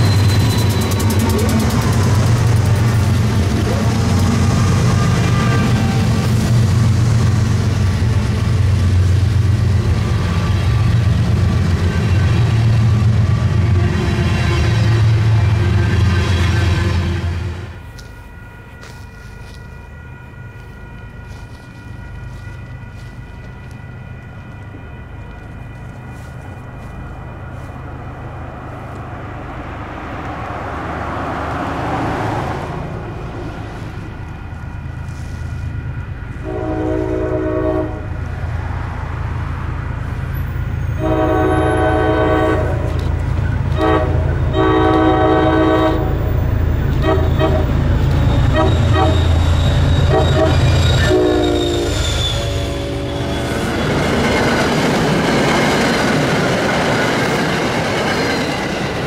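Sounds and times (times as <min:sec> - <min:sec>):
locomotive engine rumble: 0:00.0 - 0:59.0
locomotive air horn: 0:03.1 - 0:06.8, 0:34.8 - 0:38.2, 0:40.8 - 0:53.8.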